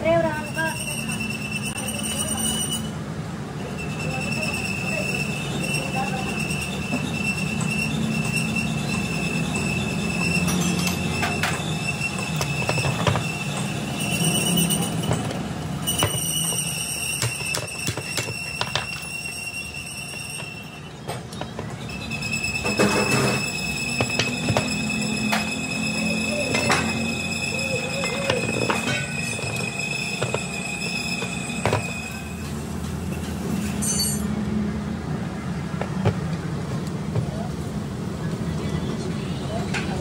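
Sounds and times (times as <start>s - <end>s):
high-pitched whine: 3.6s - 34.3s
metal parts clinking: 33.6s - 34.3s.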